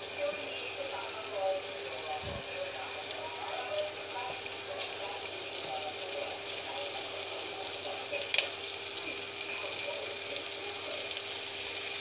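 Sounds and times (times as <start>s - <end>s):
shrimp sizzling in butter: 0.0s - 12.0s.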